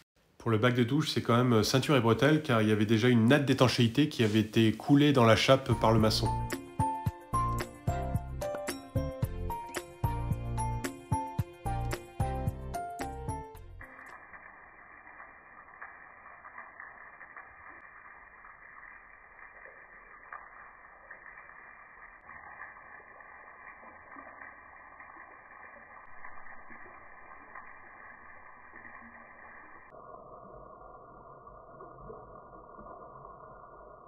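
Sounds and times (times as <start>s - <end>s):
shower water spraying: 1.7s - 29.9s.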